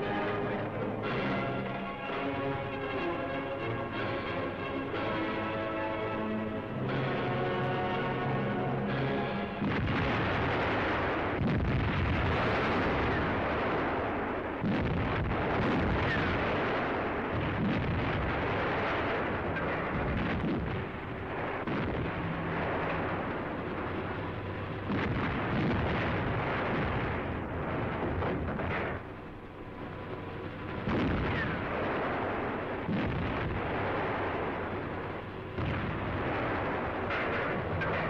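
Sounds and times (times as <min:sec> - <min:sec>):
continuous rumbling din: 0:00.0 - 0:38.0
artillery gun booms: 0:09.6 - 0:24.0, 0:24.8 - 0:29.1, 0:30.8 - 0:38.0.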